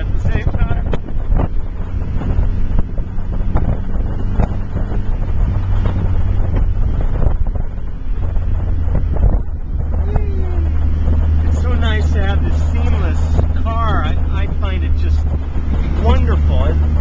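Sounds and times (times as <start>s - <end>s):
car engine droning: 0.0s - 17.0s
wind rushing over microphone: 0.0s - 17.0s.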